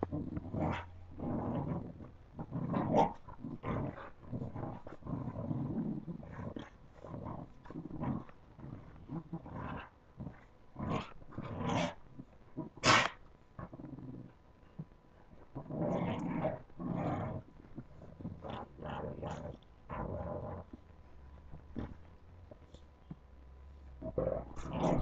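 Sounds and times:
puppies play-growling: 0.0s - 23.2s, 23.9s - 25.0s.

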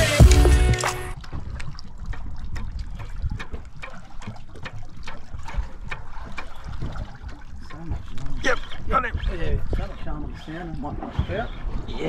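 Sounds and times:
music: 0.0s - 1.2s
water lapping against boat: 0.2s - 12.0s
small ticks and splashes: 0.8s - 10.9s.

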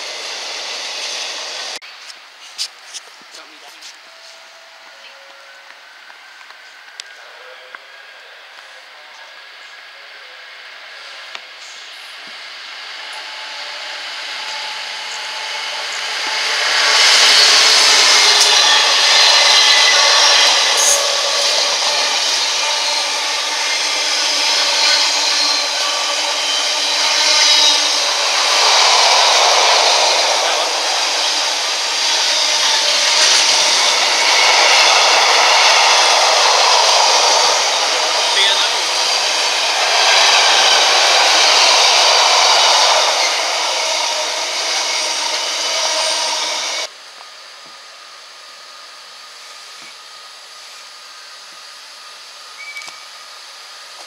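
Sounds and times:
freight train wheels rattling: 14.1s - 46.9s.

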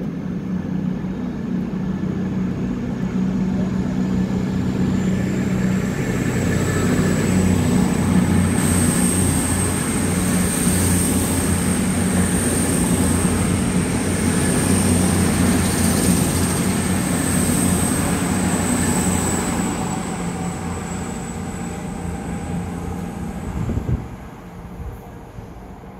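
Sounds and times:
diesel train engine hum: 0.0s - 25.9s.

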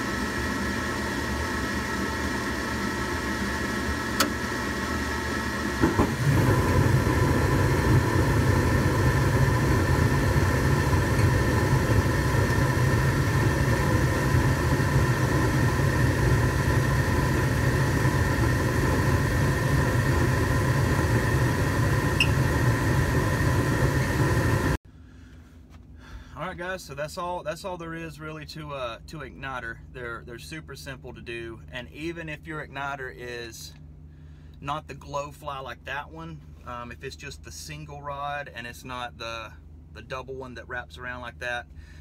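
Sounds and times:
furnace humming: 0.0s - 42.0s
igniter clicks: 4.1s - 4.4s
rush of burning gas: 5.8s - 24.8s.

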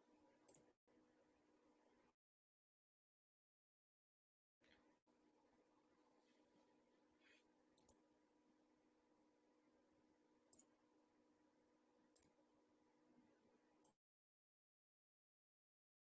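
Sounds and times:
faint steady hum: 0.0s - 2.2s, 4.6s - 14.0s
computer mouse clicks: 0.5s - 0.7s, 7.8s - 8.0s, 10.5s - 10.7s, 12.2s - 12.4s.

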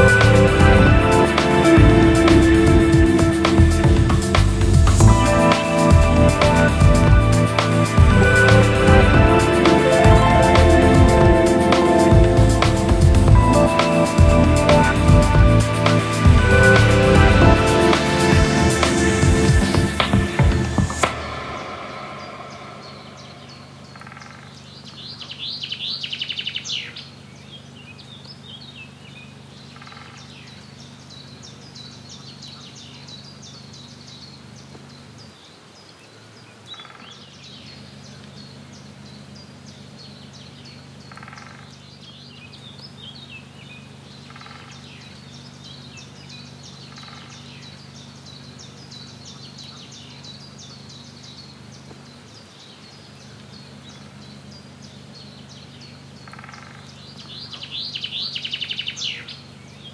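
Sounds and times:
steady low hum: 0.0s - 25.6s
lower bird call: 0.0s - 27.0s
loud rapid bird trill: 0.0s - 34.6s, 36.7s - 59.9s
birds singing and chirping: 0.0s - 59.9s.

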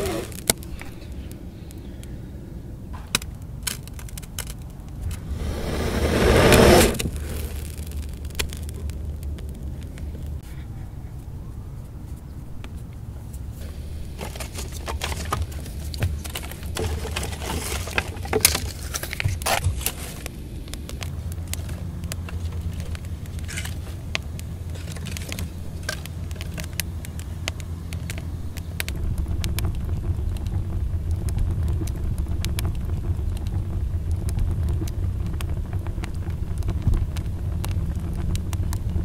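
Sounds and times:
wood fire crackling: 0.0s - 10.4s, 13.6s - 39.0s
low rumble: 4.9s - 10.4s, 20.2s - 39.0s.

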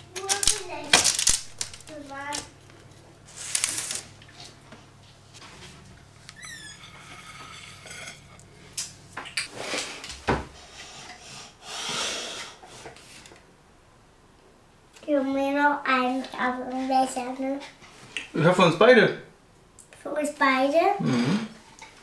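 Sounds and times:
high-pitched squeak: 6.4s - 7.6s
metal server scraping baking sheet: 6.7s - 8.4s.

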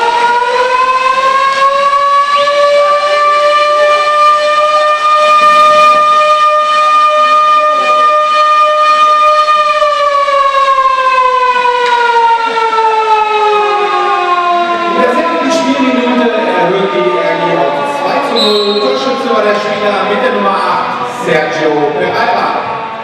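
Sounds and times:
motor siren wailing: 0.0s - 23.0s.

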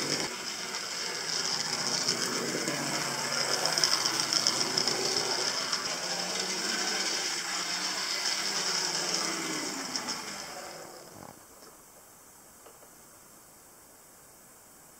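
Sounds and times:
model train whirring and rattling: 0.0s - 11.9s.

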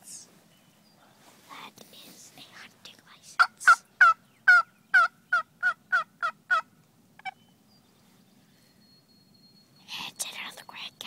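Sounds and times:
turkey yelps: 3.4s - 7.4s.

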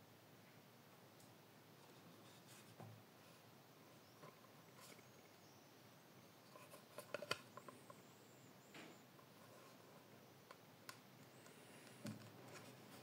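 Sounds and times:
small clicks and knocks: 6.5s - 8.0s.

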